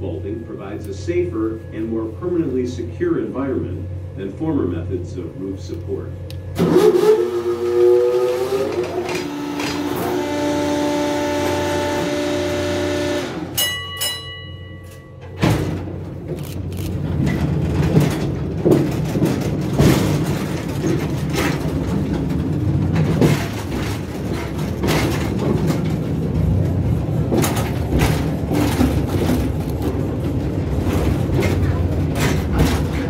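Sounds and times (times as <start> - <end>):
train cars rumbling on track: 0.0 - 33.0
knocks and rattles: 14.8 - 33.0.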